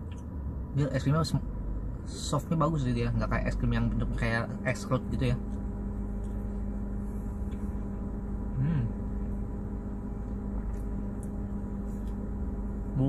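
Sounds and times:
steady low hum with rumble: 0.0s - 13.0s
person humming mm: 8.5s - 9.0s.

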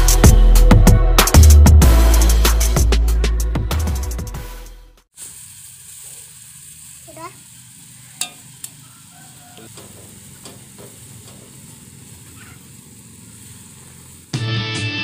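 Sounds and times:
water boiling with bubbling hiss: 5.1s - 14.4s
metal spoon clinking on pot: 8.2s - 8.5s.

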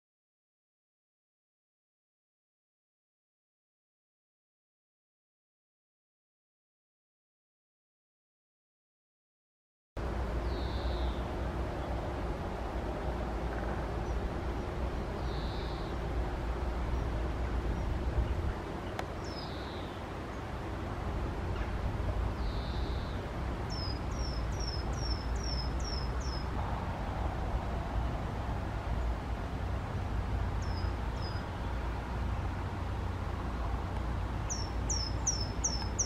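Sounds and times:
low background rumble: 10.0s - 36.0s.

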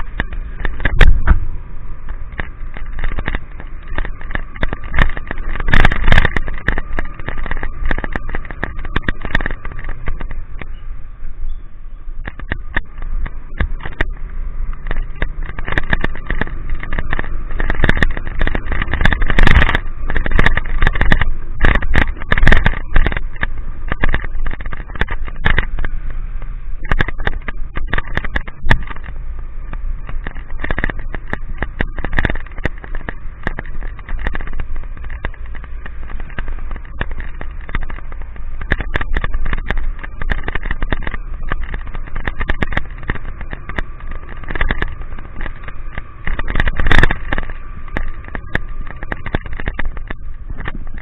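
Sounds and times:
motorcycle engine: 0.0s - 51.0s
raindrops hitting camera: 0.0s - 51.0s
wind noise: 0.0s - 51.0s.

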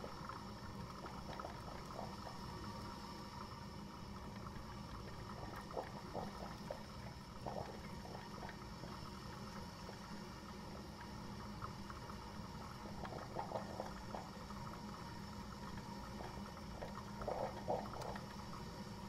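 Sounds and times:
coffee maker hum and hiss: 0.0s - 19.0s
hot water bubbling pops: 0.1s - 2.8s, 12.7s - 14.7s, 15.8s - 18.4s.

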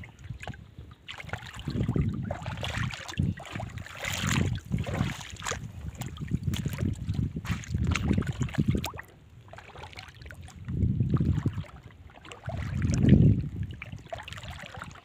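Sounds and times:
wind gusting on microphone: 0.0s - 9.1s, 10.4s - 14.1s
seawater lapping around rocks: 0.0s - 15.0s.

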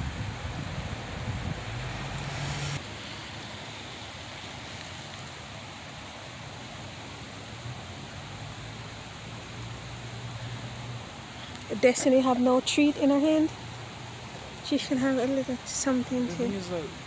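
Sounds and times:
low hum: 0.0s - 2.8s
soft outdoor hiss: 0.0s - 17.0s.

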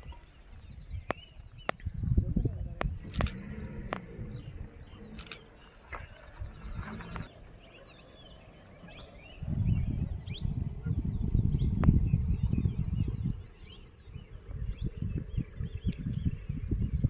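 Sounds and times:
small birds chirping: 0.0s - 17.0s
vehicle engine rumble: 2.2s - 7.6s.

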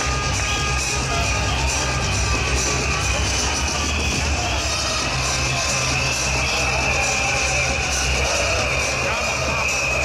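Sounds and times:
electronic dance music with heavy bass: 0.0s - 10.0s
street crowd noise: 0.0s - 10.0s.

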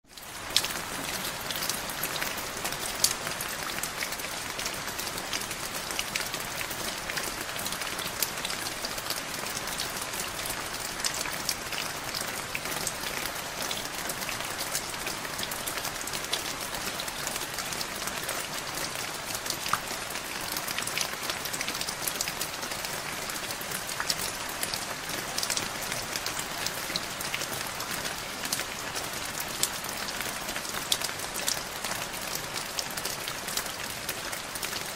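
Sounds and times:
steady rain falling: 0.0s - 34.9s.

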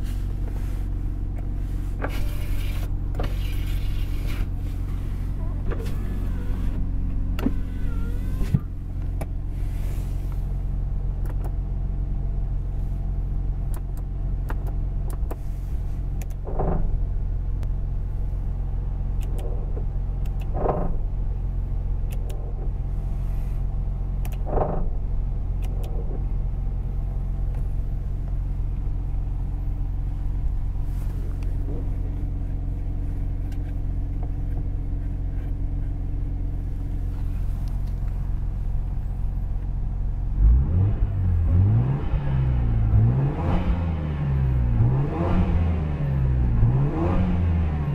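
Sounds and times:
rotary engine idling: 0.0s - 11.8s, 18.2s - 40.2s.

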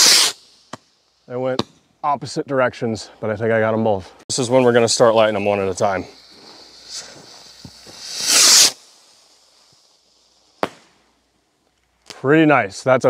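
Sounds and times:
rocket launching whoosh: 0.0s - 0.8s, 4.8s - 11.1s
rocket bursting crack: 0.0s - 1.0s, 4.7s - 11.4s
firework fuse hissing: 0.0s - 1.4s, 4.3s - 12.1s.

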